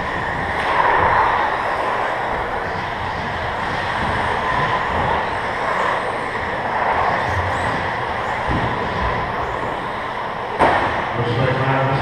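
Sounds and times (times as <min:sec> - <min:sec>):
sharp knock: 0:10.6 - 0:11.0.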